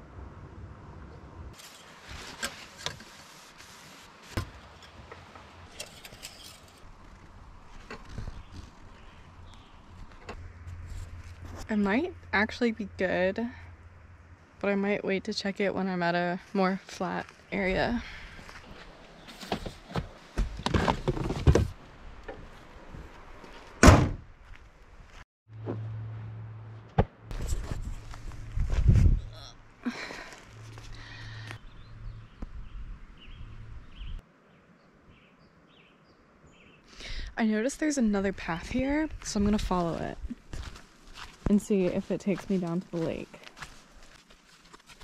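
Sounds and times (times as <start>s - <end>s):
car door slam: 23.8s - 24.2s.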